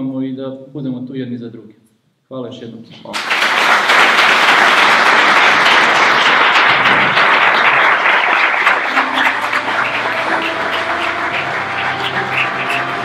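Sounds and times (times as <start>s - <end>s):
audience applauding: 3.1s - 13.0s
music: 8.4s - 13.0s.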